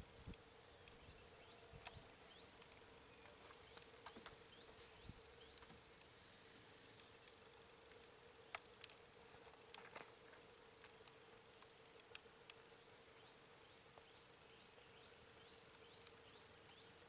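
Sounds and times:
faint clicks: 0:01.7 - 0:12.6, 0:15.6 - 0:16.9.

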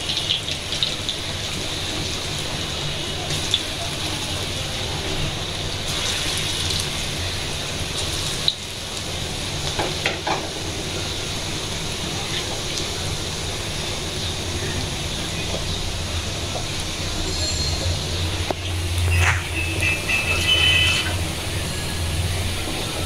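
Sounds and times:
fritters sizzling in hot oil: 0:00.0 - 0:23.0.

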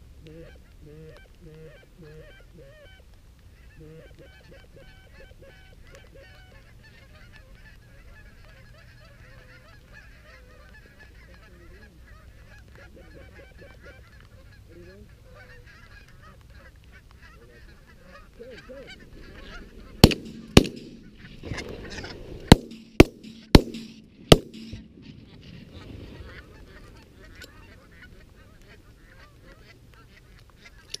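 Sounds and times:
geese honking: 0:00.2 - 0:31.0
shotgun blasts: 0:20.0 - 0:21.4, 0:22.4 - 0:25.3.

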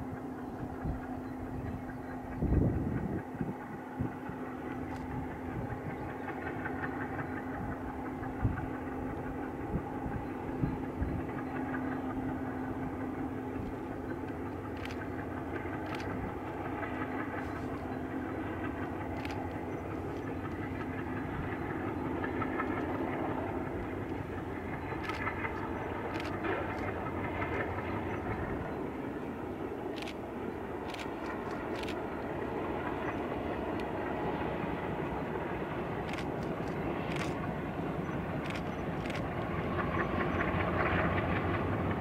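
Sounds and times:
distant diesel locomotive hum: 0:00.0 - 0:42.0
wind buffeting microphone: 0:00.0 - 0:42.0.

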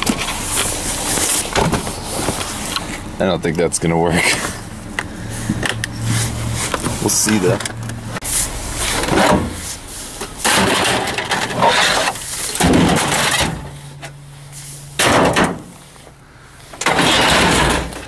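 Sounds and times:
electronics clattering in a dumpster: 0:00.0 - 0:03.6, 0:08.7 - 0:18.0.

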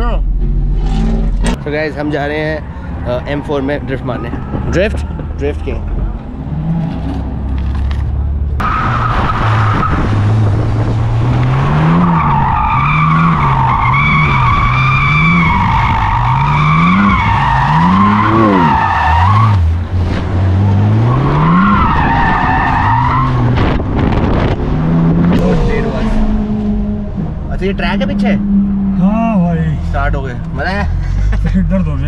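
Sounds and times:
car engine revving: 0:00.0 - 0:32.0
tyres squealing: 0:11.8 - 0:19.7.

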